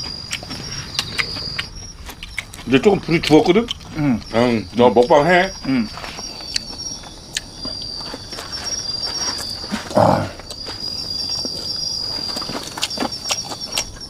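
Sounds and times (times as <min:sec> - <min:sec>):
crickets chirping: 0:00.0 - 0:14.0
low voice: 0:09.9 - 0:10.4.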